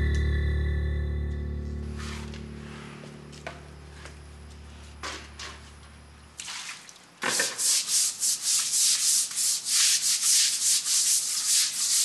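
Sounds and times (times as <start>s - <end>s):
push brooms scrubbing floor: 6.4s - 12.0s.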